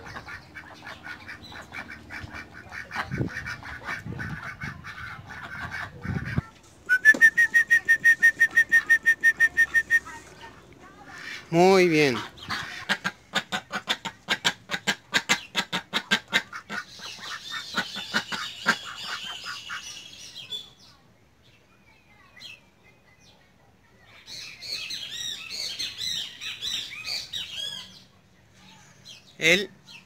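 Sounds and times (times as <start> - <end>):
ducks quacking loudly: 0.0 - 6.5, 11.0 - 20.0
small birds chirping: 0.0 - 14.6, 15.2 - 30.0.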